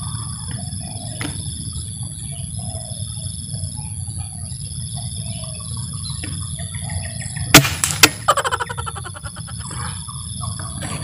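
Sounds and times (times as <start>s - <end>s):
birds chirping: 2.0s - 7.6s, 8.2s - 10.8s.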